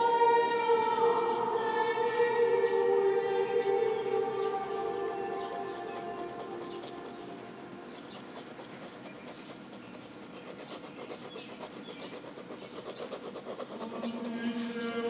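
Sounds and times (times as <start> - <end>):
pen scratching on paper: 3.6 - 15.0.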